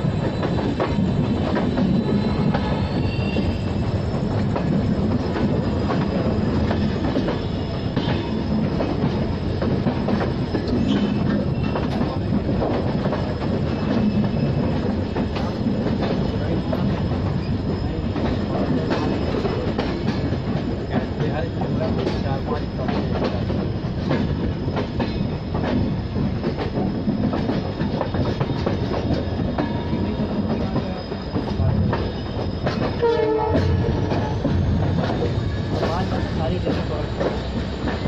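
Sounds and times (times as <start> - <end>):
high wheel squeal: 0.0 - 4.1, 10.6 - 12.3, 13.7 - 14.8
rail joint clicks: 0.0 - 38.0
train wheels rumbling: 0.0 - 38.0.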